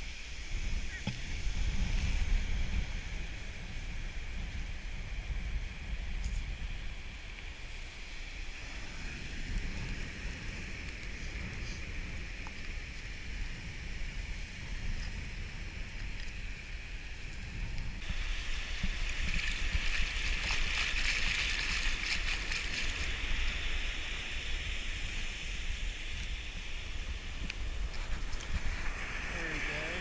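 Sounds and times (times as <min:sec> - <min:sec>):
wave wash hissing over sand: 0:00.0 - 0:30.0
wind rumbling on microphone: 0:00.0 - 0:30.0
surf at water's edge: 0:18.0 - 0:30.0.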